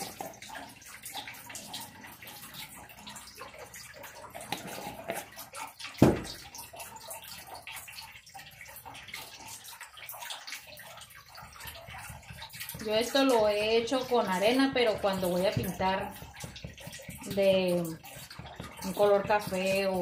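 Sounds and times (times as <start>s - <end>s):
dull knock: 6.0s - 6.4s.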